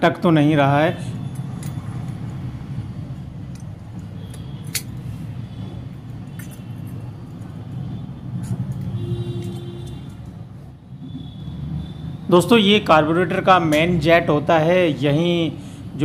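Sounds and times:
small metal parts clicking: 0:01.3 - 0:02.4, 0:03.5 - 0:05.0, 0:06.0 - 0:07.6, 0:08.4 - 0:10.4.

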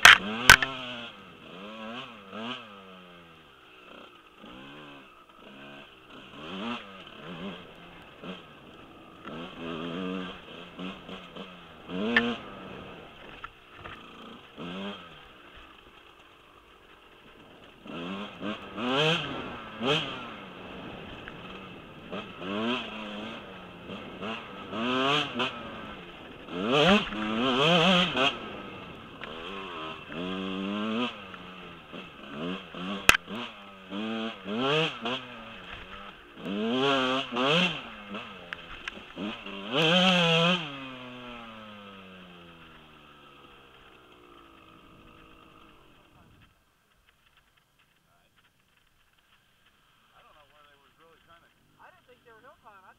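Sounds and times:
sharp click: 0:00.0 - 0:00.8
dirt bike engine revving: 0:00.0 - 0:46.5.

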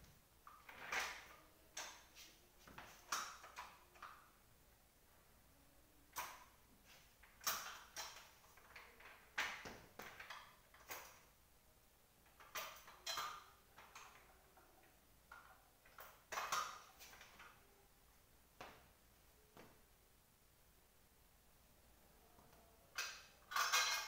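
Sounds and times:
clicks and scrapes of chair repair: 0:00.5 - 0:04.2, 0:06.2 - 0:11.2, 0:15.3 - 0:17.6, 0:23.0 - 0:24.0.

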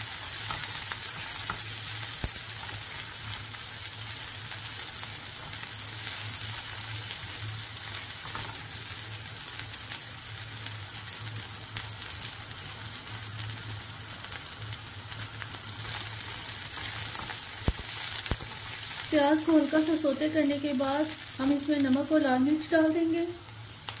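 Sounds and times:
spatula stirring in pan: 0:00.0 - 0:04.4, 0:15.7 - 0:19.2
onion sizzling in hot oil: 0:00.0 - 0:24.0.

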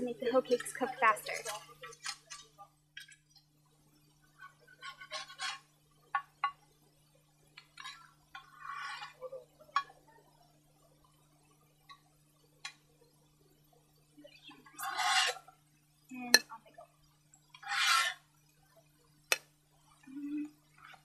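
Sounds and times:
frying pan scraping: 0:04.4 - 0:05.7, 0:07.8 - 0:09.2, 0:14.8 - 0:15.5, 0:17.6 - 0:18.2.

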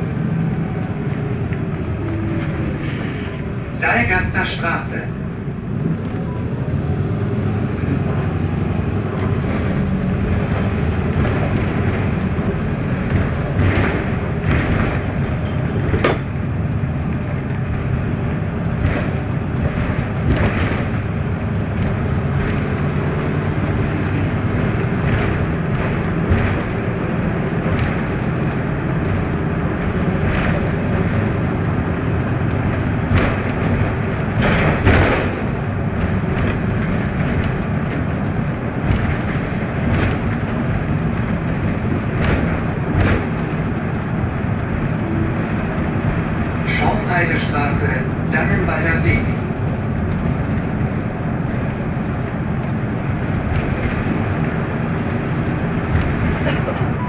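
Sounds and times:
bus interior rumble: 0:00.0 - 0:57.0
knocks and rattles: 0:10.2 - 0:46.6.

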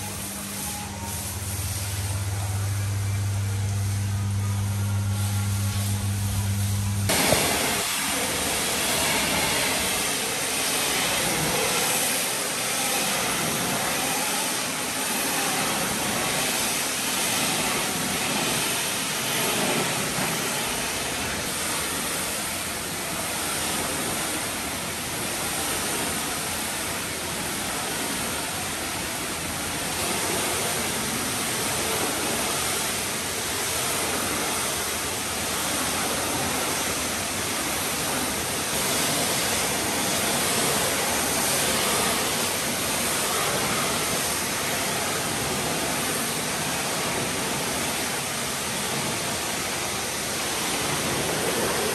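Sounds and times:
pressure washer spraying: 0:00.0 - 0:51.9.

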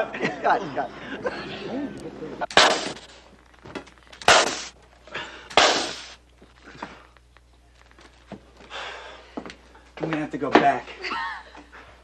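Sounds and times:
loud sharp bangs: 0:02.5 - 0:03.1, 0:04.2 - 0:04.8.

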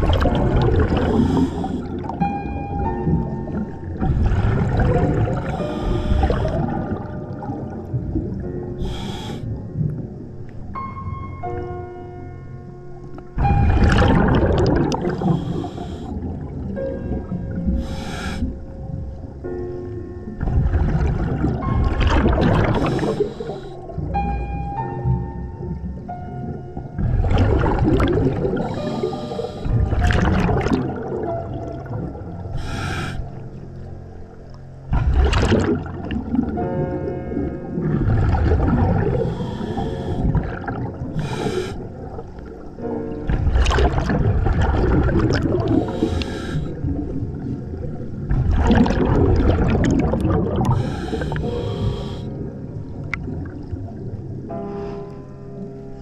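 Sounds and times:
exhaled bubbles underwater: 0:00.0 - 0:10.4, 0:13.4 - 0:19.6, 0:20.3 - 0:54.6
regulator inhalation hiss: 0:08.8 - 0:09.5, 0:15.2 - 0:16.2, 0:17.8 - 0:18.6, 0:22.8 - 0:23.8, 0:32.6 - 0:33.4, 0:39.2 - 0:40.3, 0:41.2 - 0:41.9, 0:45.9 - 0:46.8, 0:50.7 - 0:52.4.

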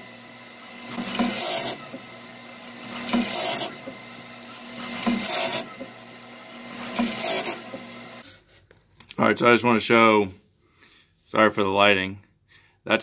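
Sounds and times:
faint motor hum: 0:00.0 - 0:08.2
grinding wheel rasping on teeth: 0:00.0 - 0:08.2.

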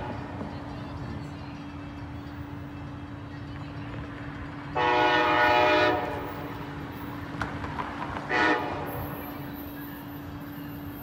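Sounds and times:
train horn blast: 0:04.8 - 0:06.5, 0:08.3 - 0:09.3.

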